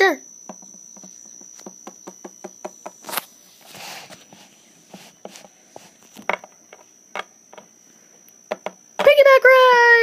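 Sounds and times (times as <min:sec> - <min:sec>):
plastic toy tapping on wooden table: 0:00.5 - 0:03.0, 0:08.5 - 0:08.8.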